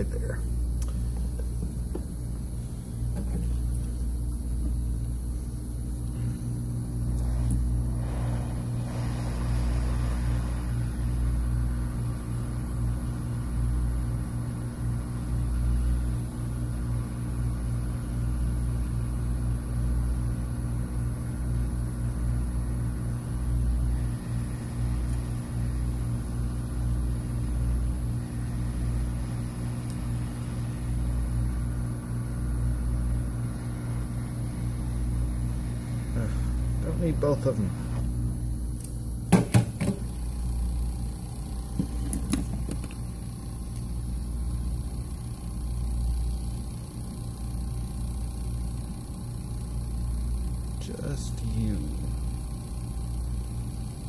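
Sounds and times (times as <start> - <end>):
hot air station blowing: 5.2 - 16.0, 22.9 - 38.3, 39.4 - 44.3.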